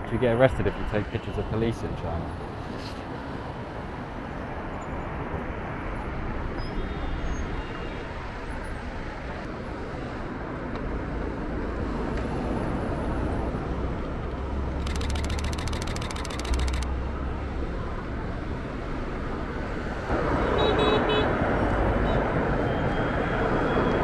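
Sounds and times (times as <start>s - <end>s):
city traffic road noise: 0.0s - 24.0s
rapid camera shutter clicks: 14.8s - 16.9s.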